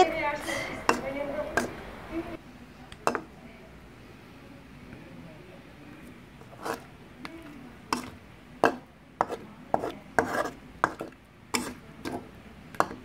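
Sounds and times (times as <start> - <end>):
metal spatula scraping a wok: 6.4 - 6.9, 7.9 - 12.2.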